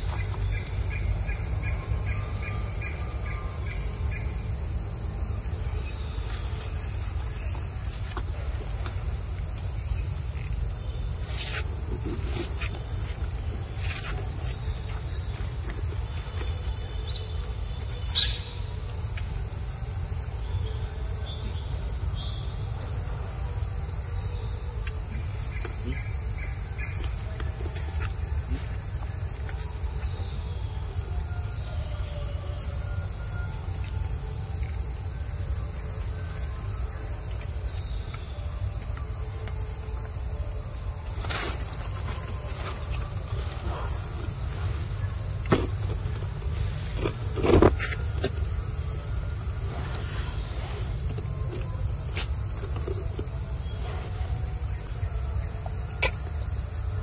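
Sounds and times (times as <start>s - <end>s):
insects droning: 0.0s - 57.0s.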